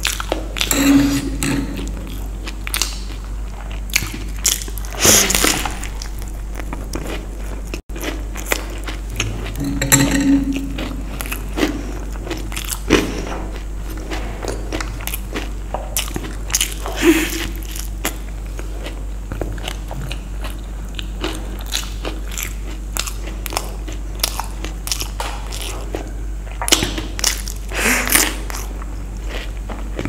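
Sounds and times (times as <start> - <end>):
steady low hum: 0.0 - 30.0
crunchy snack chewing: 10.7 - 30.0.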